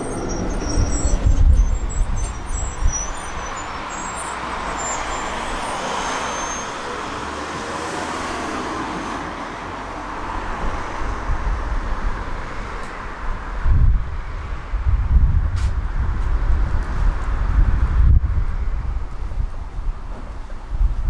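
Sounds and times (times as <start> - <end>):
faint high squeal: 0.0 - 7.0
electric tram wheels rumbling: 0.0 - 21.0.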